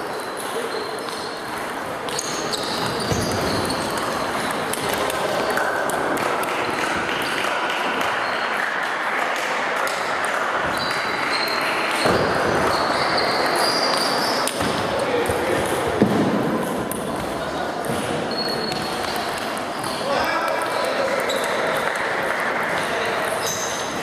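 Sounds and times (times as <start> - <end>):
hall hubbub: 0.0 - 24.0
table tennis balls clicking: 16.6 - 20.0.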